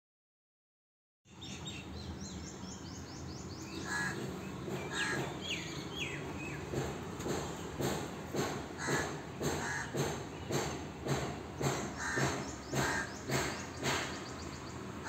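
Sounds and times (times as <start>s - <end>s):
small birds chirping: 1.3s - 7.8s, 11.5s - 15.0s.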